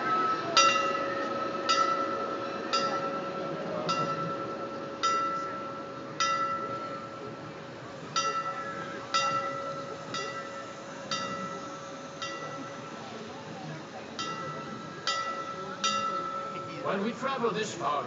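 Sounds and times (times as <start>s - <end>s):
bell ringing with metallic tone: 0.0s - 7.4s, 8.2s - 13.4s, 14.1s - 17.4s.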